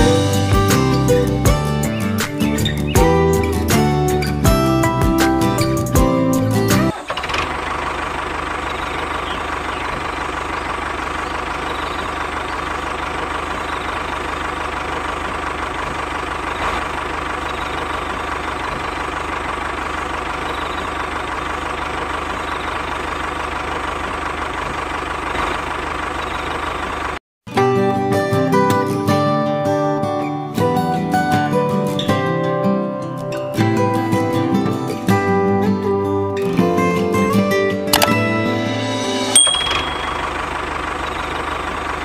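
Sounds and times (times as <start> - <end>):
engine idling: 0.0 - 27.2, 37.2 - 42.0.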